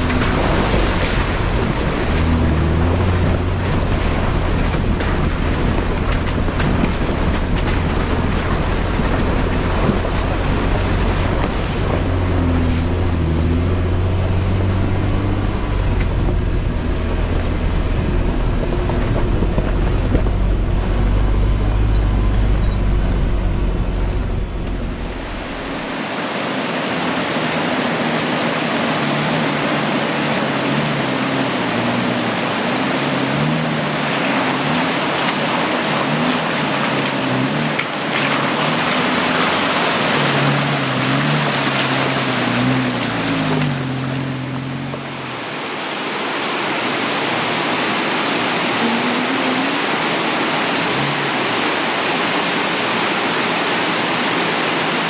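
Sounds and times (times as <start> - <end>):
low droning sound: 0.0 - 26.2
rushing creek water: 0.0 - 55.0.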